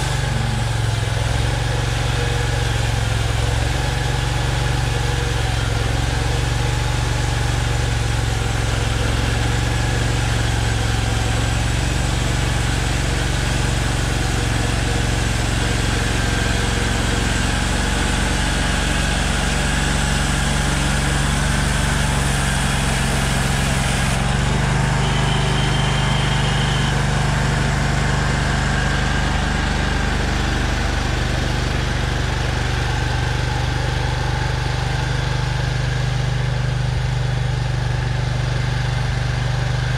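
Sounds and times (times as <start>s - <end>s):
small gas engine running: 0.0s - 39.9s.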